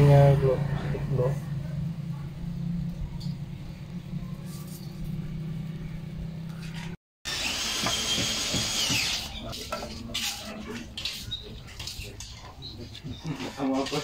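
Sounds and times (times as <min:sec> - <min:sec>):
power drill whining: 0:07.3 - 0:09.5.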